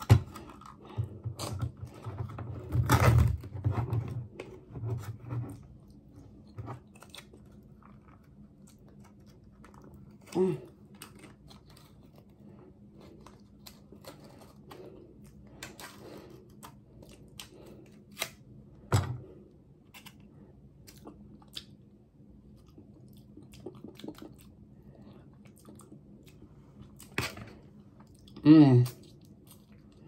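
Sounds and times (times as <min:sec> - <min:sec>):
paper packet crinkling and tearing: 0:06.8 - 0:18.4.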